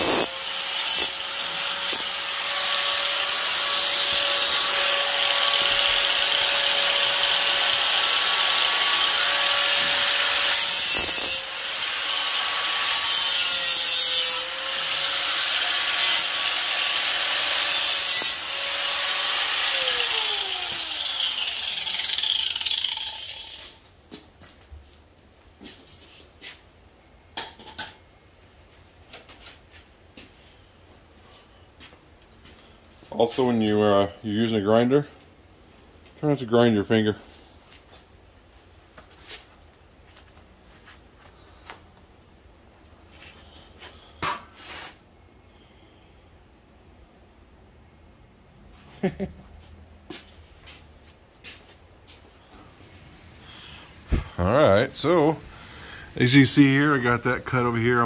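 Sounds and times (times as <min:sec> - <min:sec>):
power grinder grinding steel: 0:00.0 - 0:23.8.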